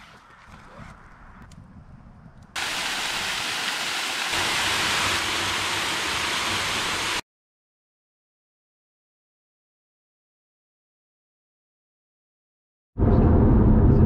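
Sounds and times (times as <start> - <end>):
waterfall rushing: 2.6 - 7.2.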